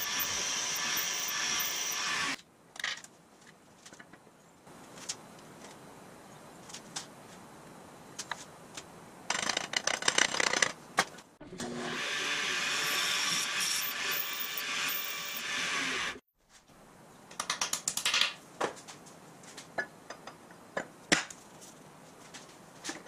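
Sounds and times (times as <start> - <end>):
power tool motor hum: 0.0 - 2.4.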